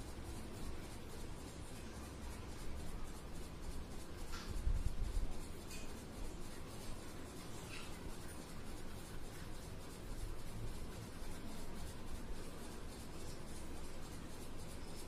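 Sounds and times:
crayon scribbling on paper: 0:00.0 - 0:15.0.

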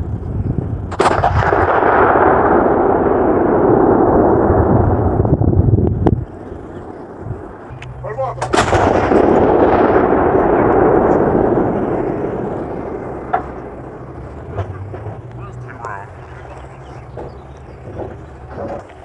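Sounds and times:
long rolling rumble: 0:00.0 - 0:19.0
artillery gun blast: 0:00.8 - 0:15.3.

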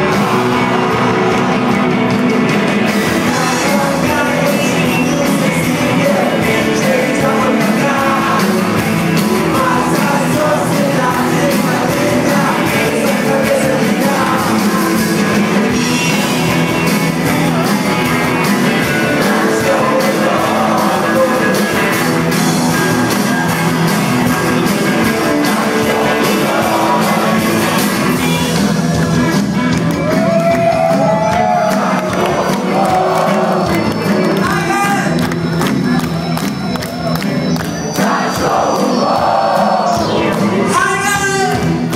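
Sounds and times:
live rock band playing: 0:00.0 - 0:41.9
man singing: 0:03.0 - 0:16.9, 0:17.5 - 0:28.9, 0:38.0 - 0:41.8.

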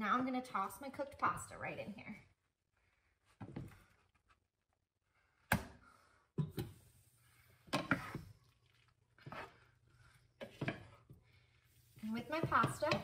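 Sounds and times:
wooden spatula knocking on pan: 0:12.3 - 0:13.0.

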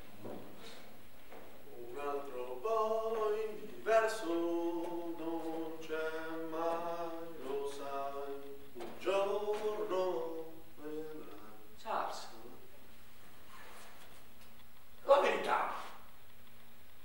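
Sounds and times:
person singing unaccompanied: 0:01.7 - 0:11.9.

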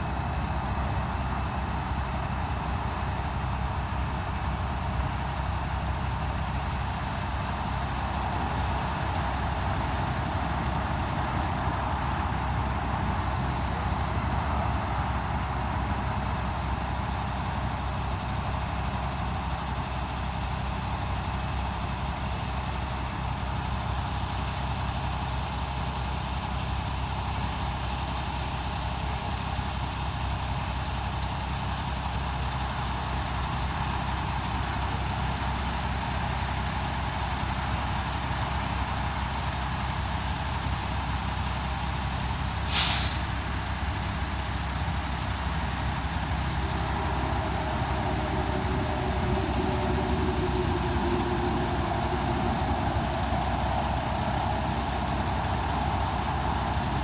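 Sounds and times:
road traffic rumble: 0:00.0 - 0:57.0.

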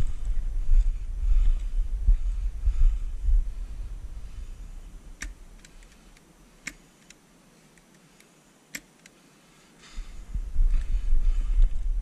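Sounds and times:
sharp clicks: 0:05.2 - 0:09.2.

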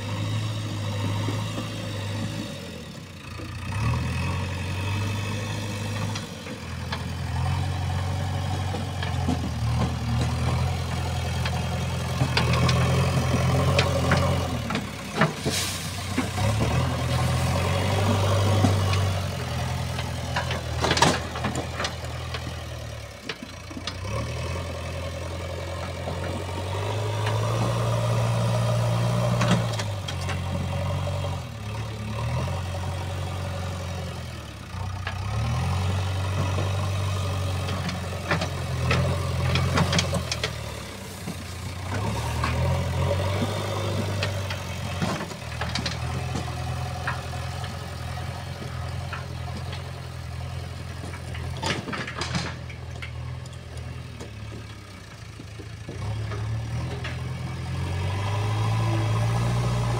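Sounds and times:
diesel engine running: 0:00.0 - 0:59.9
metal clanks: 0:50.9 - 0:57.4.

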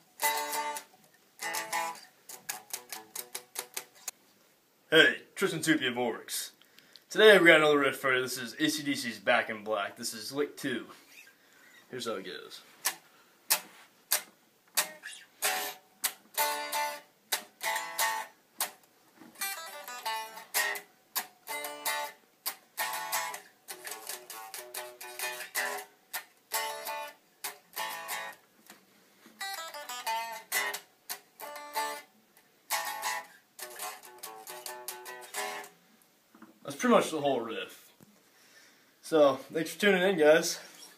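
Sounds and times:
electric guitar rock riff: 0:00.2 - 0:04.1, 0:12.8 - 0:28.4, 0:29.4 - 0:32.1, 0:32.7 - 0:35.7.

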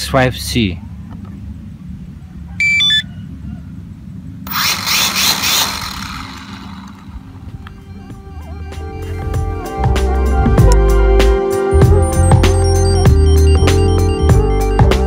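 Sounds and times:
transmitter stepped beep: 0:02.6 - 0:03.0
quadcopter propellers whirring: 0:04.4 - 0:08.2.

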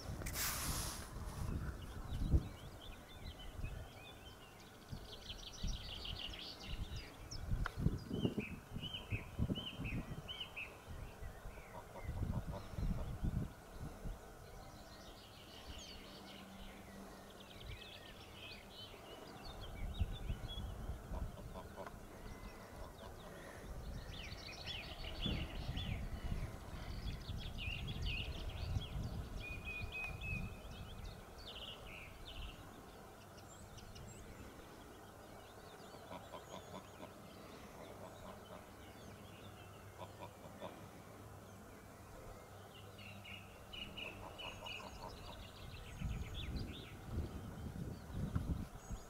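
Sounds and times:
wind rumble on microphone: 0:00.0 - 0:04.1, 0:04.8 - 0:16.0, 0:17.5 - 0:32.7, 0:44.9 - 0:49.0
goslings peeping: 0:11.6 - 0:13.5, 0:20.3 - 0:24.1, 0:39.9 - 0:40.8, 0:43.8 - 0:45.8.

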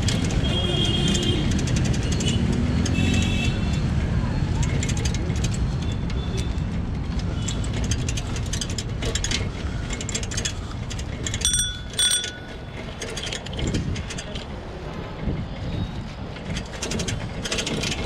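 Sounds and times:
bike basket and frame rattling: 0:00.0 - 0:18.0
bicycle bell ringing: 0:11.4 - 0:12.8.

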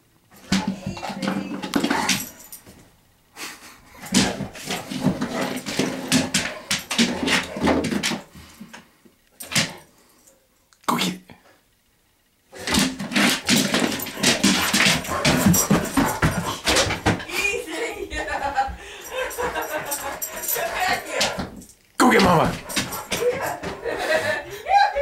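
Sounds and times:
dog growling playfully: 0:12.6 - 0:17.1, 0:19.1 - 0:21.6, 0:22.2 - 0:24.5.

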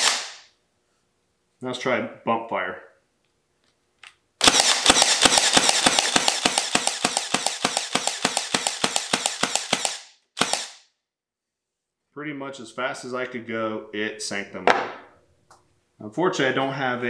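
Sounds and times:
nail gun shooting into wood: 0:00.0 - 0:00.5, 0:04.4 - 0:10.8.

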